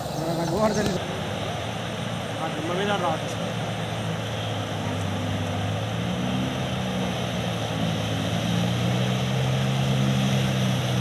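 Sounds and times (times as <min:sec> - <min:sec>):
floodwater rushing: 0:00.0 - 0:11.0
motorcycle engines droning: 0:00.0 - 0:11.0.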